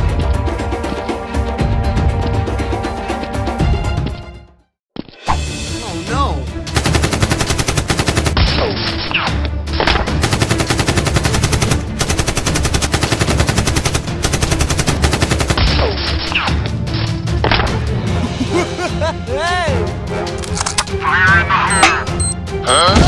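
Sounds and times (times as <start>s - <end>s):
background music: 0.0s - 23.0s.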